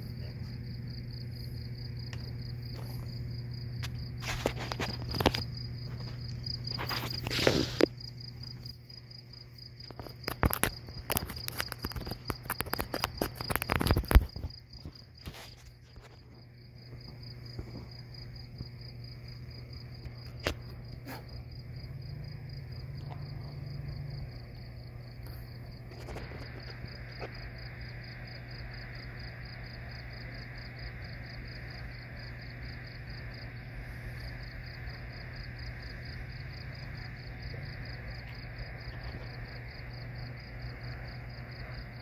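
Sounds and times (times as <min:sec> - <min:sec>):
crickets chirping: 0:00.0 - 0:42.0
low steady hum: 0:00.0 - 0:42.0
sharp clicks and knocks: 0:09.8 - 0:15.0.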